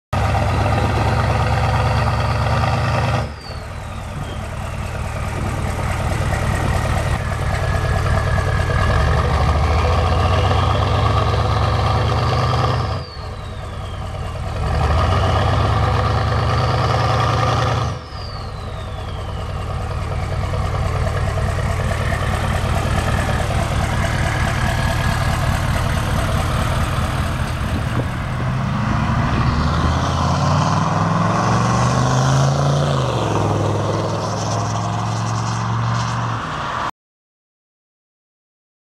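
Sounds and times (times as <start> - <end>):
diesel truck engine revving: 0.1 - 36.9
turbo whistle: 9.4 - 16.0, 17.9 - 20.7.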